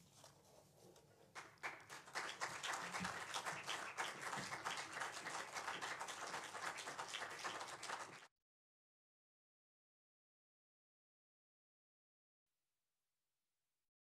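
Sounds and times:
audience applauding: 0:01.4 - 0:08.3.

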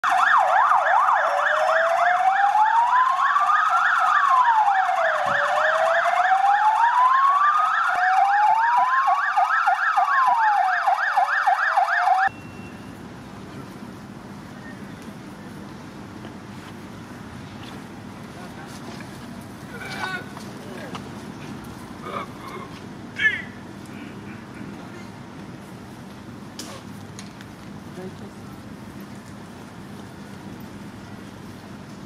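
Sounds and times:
police sirens: 0:00.0 - 0:15.9
faint outdoor ambience: 0:00.0 - 0:32.0.

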